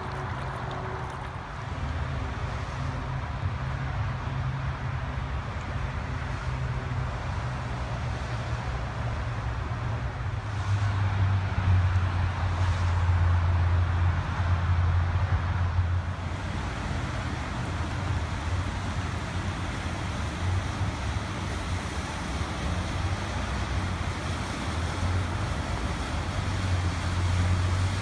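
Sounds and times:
road traffic hum: 0:00.0 - 0:28.0.

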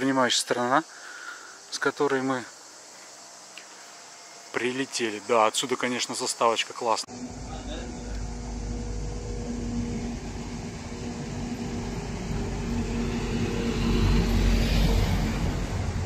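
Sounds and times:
car engine passing: 0:07.1 - 0:16.0.

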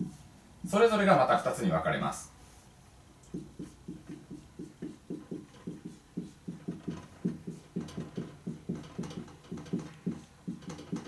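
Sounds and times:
marker pen on whiteboard: 0:00.0 - 0:00.8, 0:03.2 - 0:11.0.

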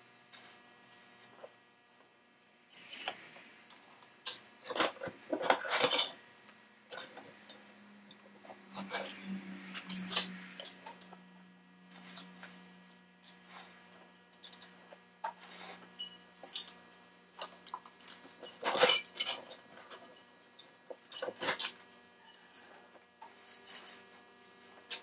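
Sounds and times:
low steady hum: 0:00.0 - 0:25.0
metal parts clinking and scraping: 0:02.7 - 0:03.2, 0:04.2 - 0:06.2, 0:08.5 - 0:11.0, 0:14.3 - 0:22.7, 0:23.3 - 0:24.0.

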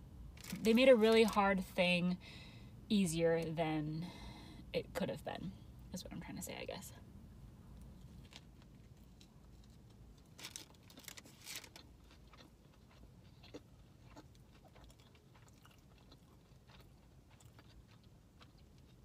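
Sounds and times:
sandwich being chewed: 0:07.8 - 0:19.0
clicky chews: 0:12.0 - 0:19.0.

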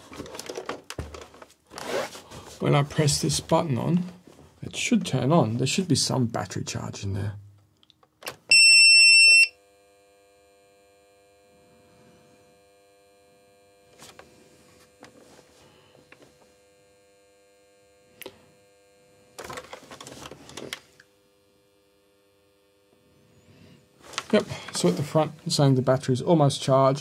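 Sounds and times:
device being handled: 0:00.0 - 0:01.9, 0:19.4 - 0:20.9
faint electrical hum: 0:00.0 - 0:27.0
loud high beep: 0:08.5 - 0:09.6.

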